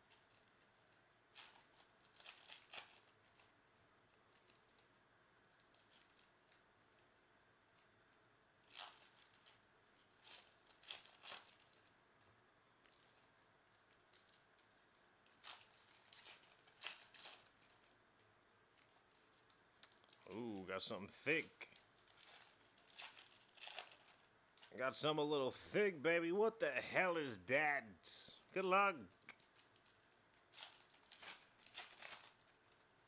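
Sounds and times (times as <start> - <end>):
foil wrappers tearing and crinkling: 0.0 - 7.1, 8.6 - 12.0, 12.8 - 20.4, 21.3 - 24.7, 29.2 - 33.0.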